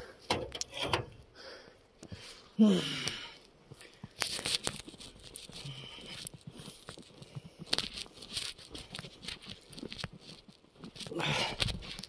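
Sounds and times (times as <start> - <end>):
crackling and rustling in snow: 3.4 - 12.0.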